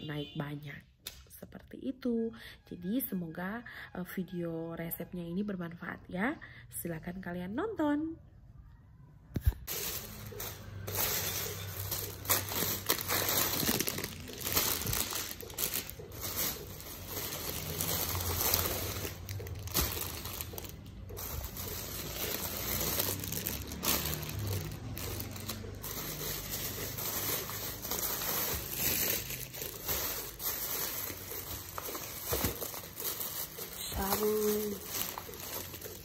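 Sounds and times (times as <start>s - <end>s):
plastic bags rustling: 9.5s - 36.0s.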